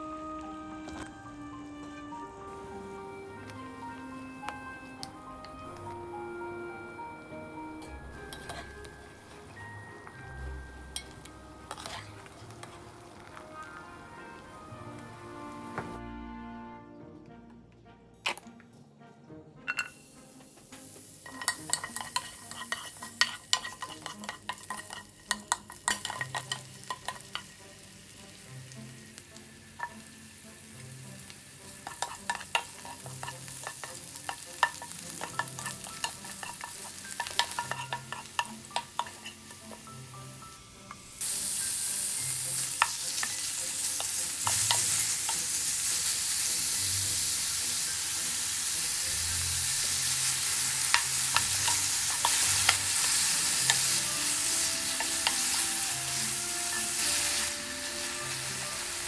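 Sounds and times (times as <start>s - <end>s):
meat frying with loud hiss: 0.0s - 6.8s, 8.0s - 16.0s, 19.9s - 59.0s
food sizzling in oil: 0.0s - 16.0s, 19.8s - 59.0s
spatula scraping a pan: 8.2s - 8.8s, 11.6s - 12.8s, 21.2s - 28.8s, 31.2s - 39.9s, 50.0s - 57.5s.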